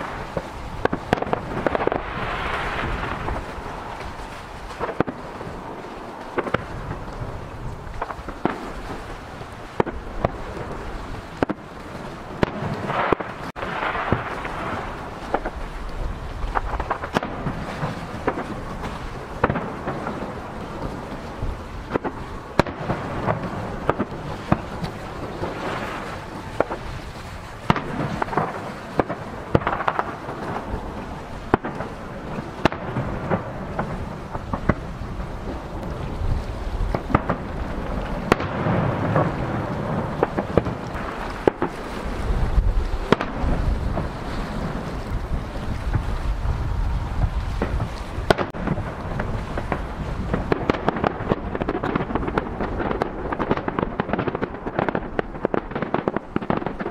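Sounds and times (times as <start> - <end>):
rolling rumble and crackle: 0.0 - 56.9.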